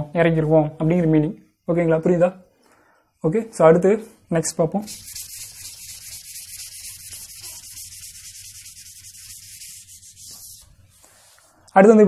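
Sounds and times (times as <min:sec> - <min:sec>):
duster scrubbing a blackboard: 0:04.9 - 0:11.4.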